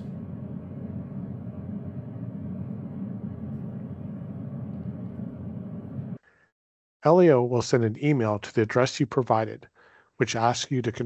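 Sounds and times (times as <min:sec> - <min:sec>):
low background hum: 0:00.0 - 0:06.2.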